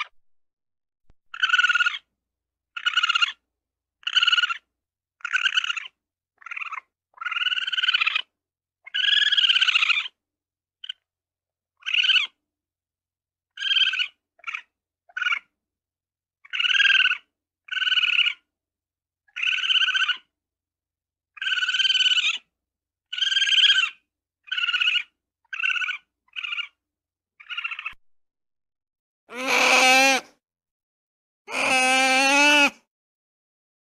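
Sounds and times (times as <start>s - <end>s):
ferret high-pitched calls: 1.3s - 2.1s, 2.7s - 3.4s, 4.0s - 10.2s, 11.8s - 12.4s, 13.6s - 15.5s, 16.4s - 18.4s, 19.3s - 20.3s, 21.3s - 22.5s, 23.1s - 26.8s, 27.4s - 28.0s, 29.3s - 30.3s, 31.5s - 32.8s.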